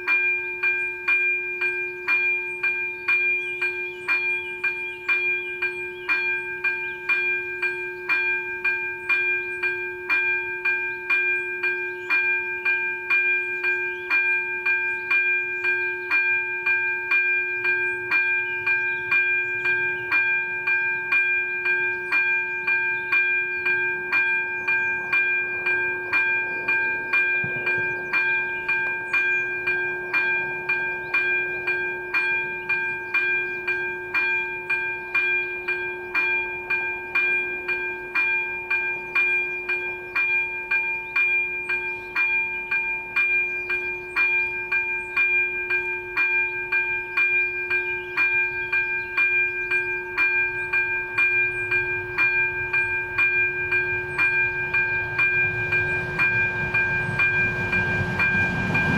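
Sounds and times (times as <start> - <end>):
level crossing warning bell ringing: 0.0 - 58.9.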